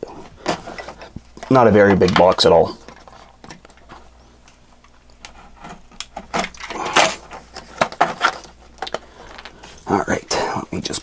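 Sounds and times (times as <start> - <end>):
cardboard scraping and rustling: 7.2 - 8.6.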